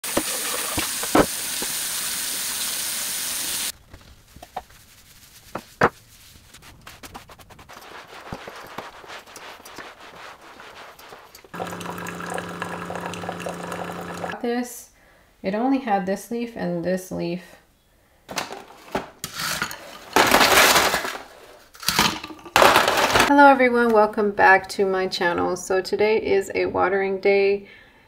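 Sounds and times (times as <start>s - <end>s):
tap running into sink: 0.1s - 1.8s, 11.5s - 14.4s
coffee maker pumping hum: 8.2s - 14.4s.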